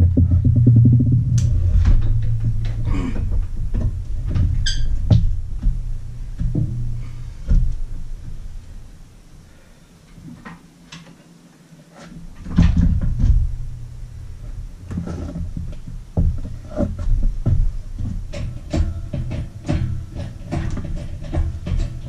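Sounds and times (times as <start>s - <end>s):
metal knocks and clunks: 0.0s - 8.9s, 12.4s - 13.8s, 14.8s - 22.0s.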